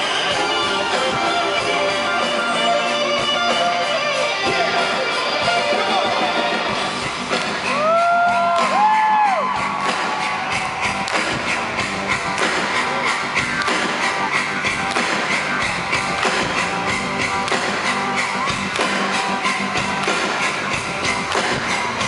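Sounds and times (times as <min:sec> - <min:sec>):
electric guitar: 0:00.0 - 0:08.9
drum kit steady beat: 0:00.0 - 0:22.0.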